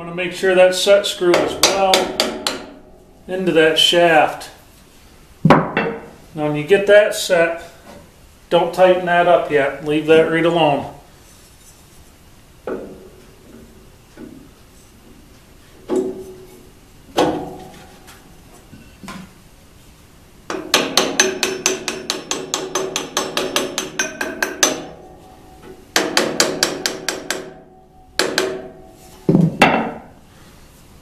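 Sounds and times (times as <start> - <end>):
wooden mallet tapping metal pulley: 20.5 - 27.6.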